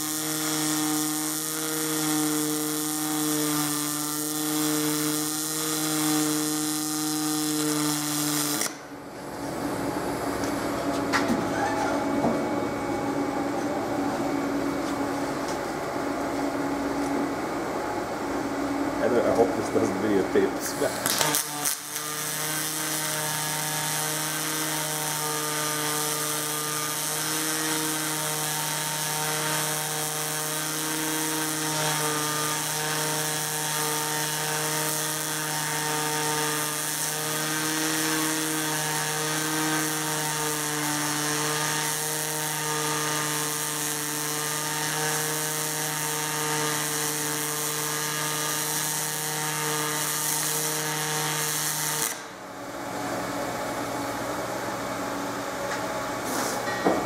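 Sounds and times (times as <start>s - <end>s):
welding arc hissing and humming: 0.0s - 57.0s.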